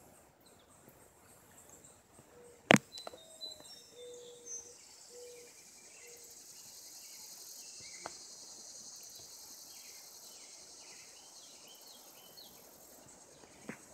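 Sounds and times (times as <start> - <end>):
high-pitched insect chorus: 3.0 - 13.9.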